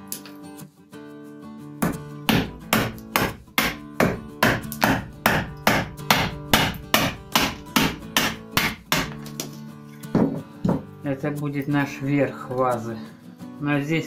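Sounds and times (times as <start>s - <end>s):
acoustic guitar music: 0.0s - 14.0s
hammer striking wood chisel: 1.8s - 9.5s, 10.1s - 10.8s.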